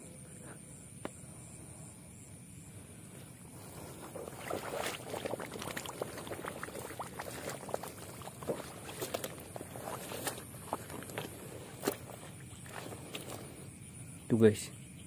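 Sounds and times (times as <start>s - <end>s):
grass stems crackling underfoot: 3.6s - 13.6s
footsteps squelching in mud: 3.6s - 13.7s.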